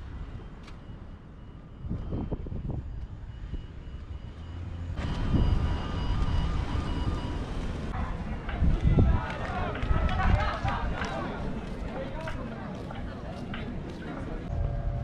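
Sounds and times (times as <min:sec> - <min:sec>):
rushing engine with high whine: 0:00.0 - 0:08.0, 0:14.5 - 0:15.0
wind buffeting microphone: 0:01.3 - 0:04.3, 0:05.0 - 0:15.0.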